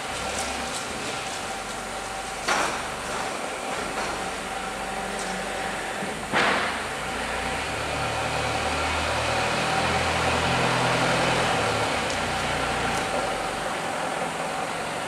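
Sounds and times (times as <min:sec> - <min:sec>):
plastic crates rolling: 0:00.0 - 0:07.0, 0:10.1 - 0:15.0
conveyor motor humming: 0:00.0 - 0:15.0.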